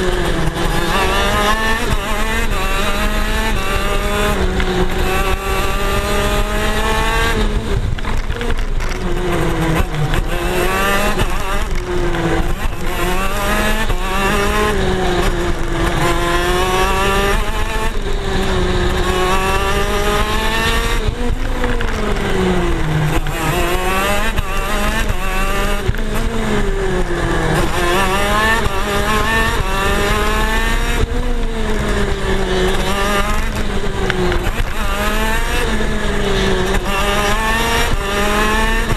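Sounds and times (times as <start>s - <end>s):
racing kart two-stroke engine: 0.0s - 38.9s.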